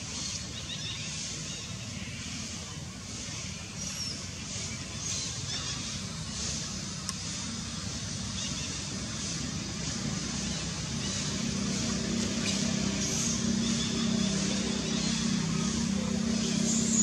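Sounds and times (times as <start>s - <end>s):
outdoor noise hiss: 0.0s - 17.0s
motor engine humming: 5.9s - 17.0s.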